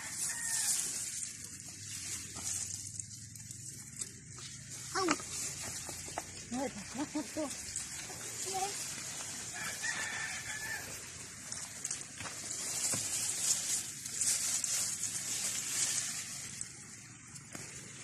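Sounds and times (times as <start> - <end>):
rooster crowing: 0.0 - 1.0, 9.5 - 11.1
rustle of plants being pulled: 0.0 - 18.0.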